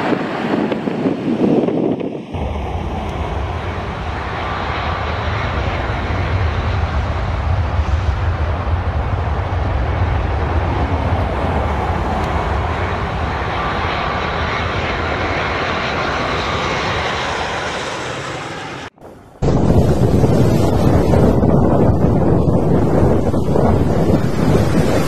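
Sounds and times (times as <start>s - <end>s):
jet airliner engines: 0.0s - 25.0s.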